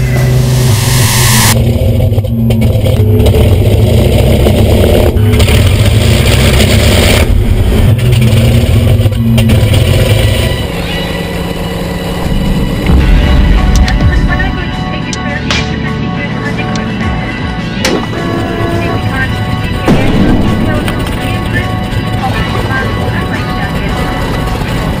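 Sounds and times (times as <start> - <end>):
radial piston engine droning: 7.8 - 25.0.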